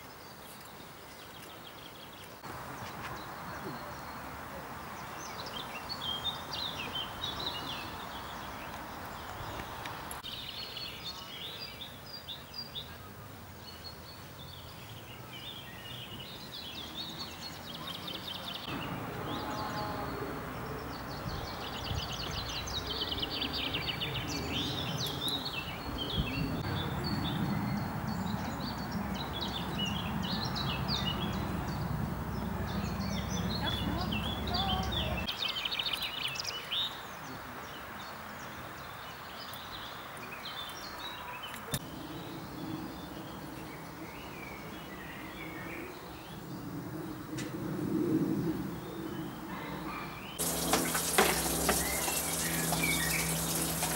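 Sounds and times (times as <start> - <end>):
small birds singing: 0.0 - 47.3, 48.2 - 53.9.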